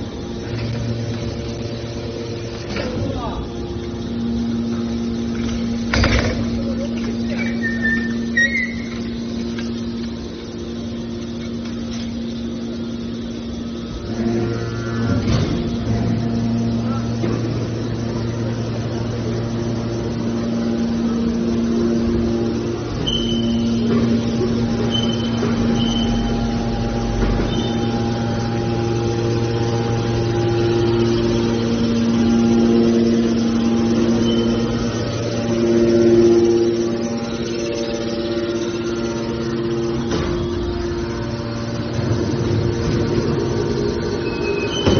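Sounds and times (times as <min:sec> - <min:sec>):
baler power unit humming: 0:00.0 - 0:44.9
short high squeal: 0:07.4 - 0:09.0, 0:23.0 - 0:23.8.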